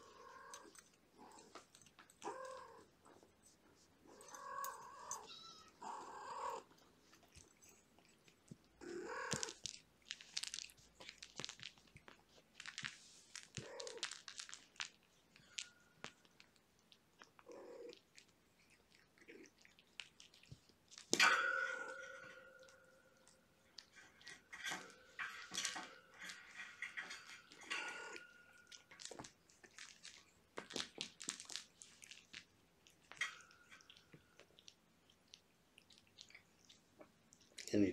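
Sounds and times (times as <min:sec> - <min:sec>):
soft clicks and rustles: 0:00.0 - 0:37.9
cat meowing: 0:04.1 - 0:06.7
kitten squeak: 0:04.4 - 0:06.6
cat tongue licking: 0:28.7 - 0:37.7.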